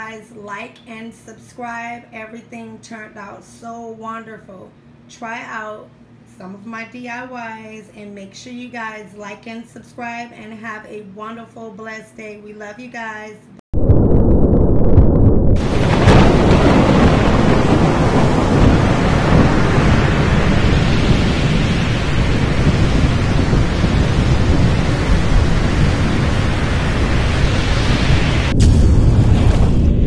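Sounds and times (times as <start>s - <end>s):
rumbling thunder: 13.8s - 30.0s
heavy rain rushing: 15.5s - 30.0s.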